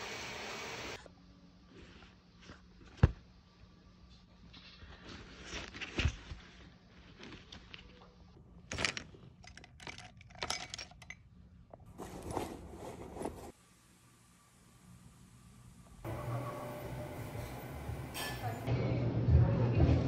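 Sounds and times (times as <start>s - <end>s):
backpack fabric rustling: 11.9s - 13.6s
canvas bag rustling: 11.9s - 13.6s.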